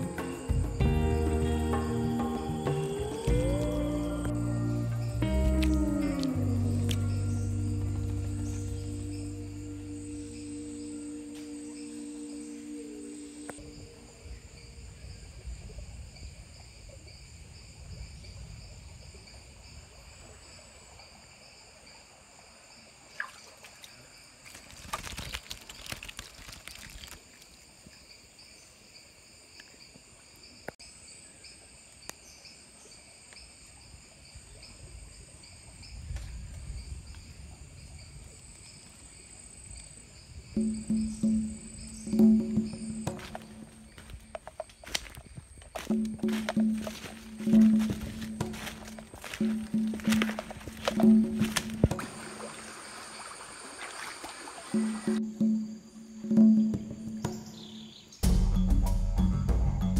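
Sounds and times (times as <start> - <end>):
held music note: 0.0 - 13.8, 45.8 - 52.2
insects chirring: 0.0 - 59.9
footsteps through undergrowth: 3.3 - 9.1, 23.6 - 27.6, 42.0 - 52.7
water splashing: 23.0 - 27.9, 42.0 - 55.2
twig snapping: 24.5 - 27.5, 44.0 - 52.1
rustling handling noise: 43.1 - 52.0.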